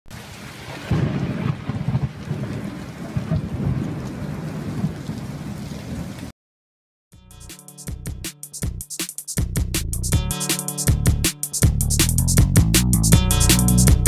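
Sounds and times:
heavy rain: 0:00.1 - 0:06.3
rolling thunder: 0:00.2 - 0:06.3.

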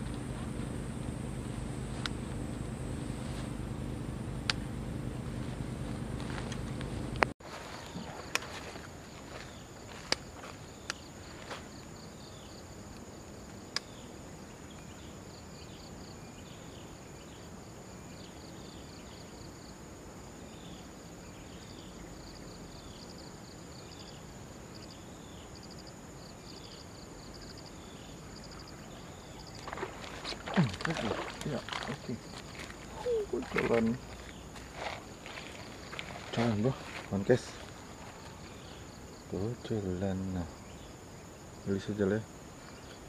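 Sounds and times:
insect chirping trill: 0:00.0 - 0:43.0.

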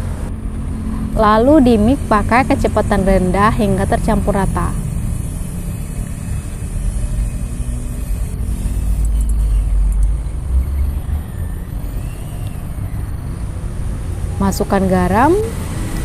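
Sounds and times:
hand mixer motor hum: 0:02.4 - 0:09.7.

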